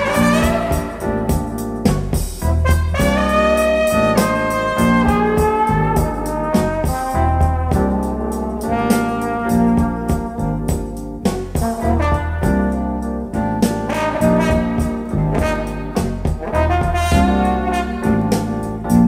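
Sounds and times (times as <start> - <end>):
brass-led jazz from vinyl record: 0.0 - 19.0.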